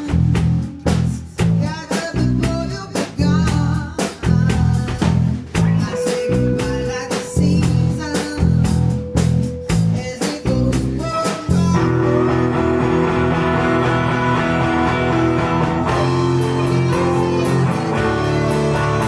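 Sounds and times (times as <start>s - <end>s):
drum kit beat: 0.0s - 19.0s
electric guitars: 5.1s - 19.0s.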